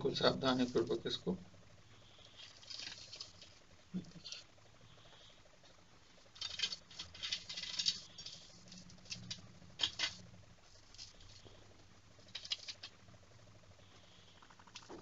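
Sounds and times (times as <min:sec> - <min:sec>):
crisp snacks crackling and crunching: 0:02.4 - 0:03.6, 0:06.4 - 0:10.2, 0:12.3 - 0:13.0.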